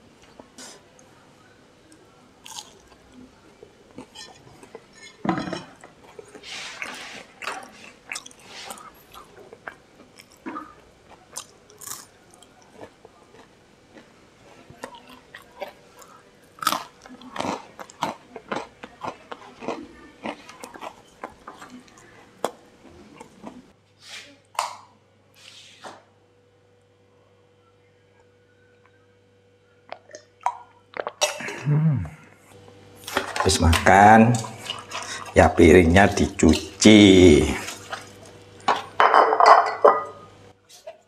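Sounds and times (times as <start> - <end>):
person chewing crispy food: 2.4 - 4.9, 5.8 - 23.7, 33.0 - 39.0.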